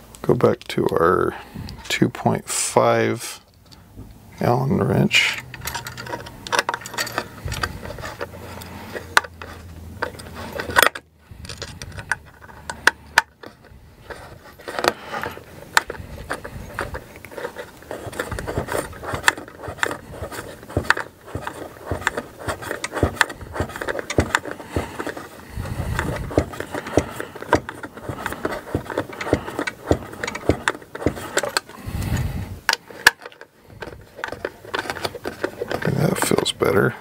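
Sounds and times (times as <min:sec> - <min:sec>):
screwdriver clicking and scraping: 0:05.3 - 0:36.9.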